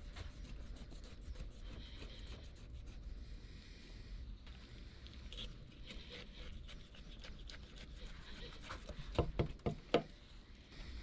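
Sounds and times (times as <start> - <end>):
knife scraping fish flesh: 0.0 - 3.1, 5.2 - 9.4.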